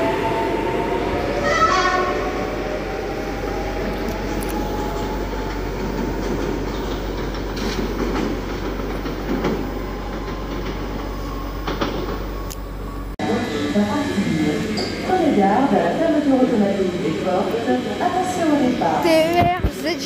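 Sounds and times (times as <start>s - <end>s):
train rumbling: 0.0s - 20.0s
train wheels clacking: 4.4s - 10.8s.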